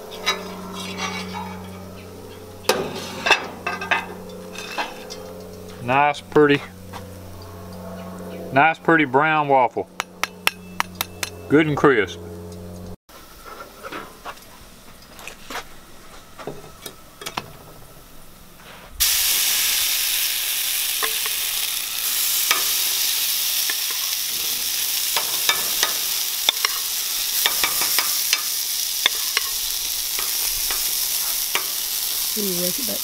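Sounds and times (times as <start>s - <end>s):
waffle batter sizzling: 18.8s - 33.0s.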